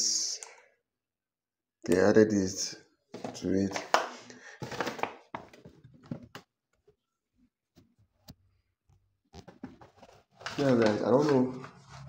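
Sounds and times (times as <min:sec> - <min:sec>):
food containers clicking and knocking: 0:03.1 - 0:06.5.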